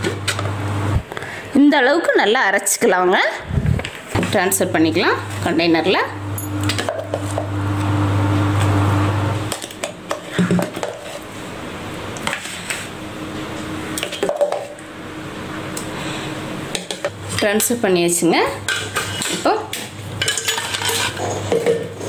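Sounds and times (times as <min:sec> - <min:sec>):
low hum: 0:04.6 - 0:17.2.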